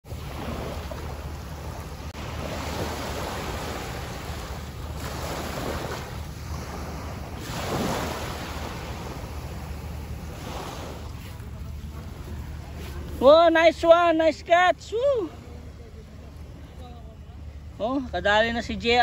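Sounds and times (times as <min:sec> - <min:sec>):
wind rumbling on microphone: 0:00.0 - 0:13.5
small waves lapping on sand: 0:00.0 - 0:19.0.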